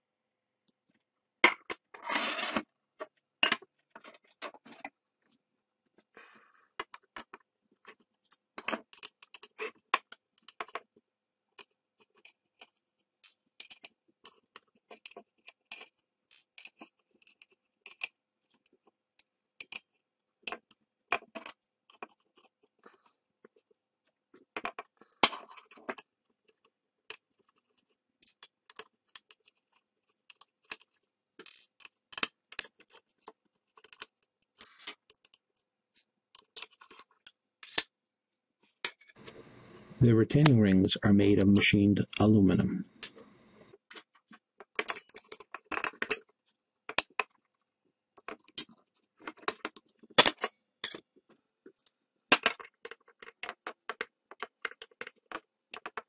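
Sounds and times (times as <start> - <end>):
small metal clicks and scrapes: 6.8 - 10.9, 11.6 - 23.6, 24.4 - 37.9, 43.0 - 47.5, 48.2 - 51.0, 51.7 - 56.0.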